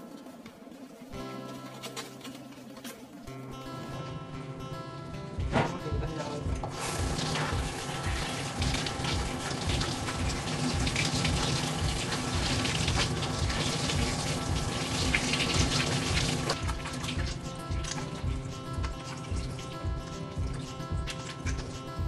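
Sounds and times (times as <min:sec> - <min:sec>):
background music with steady beat: 0:00.0 - 0:22.0
water spraying from shower head: 0:06.7 - 0:21.7.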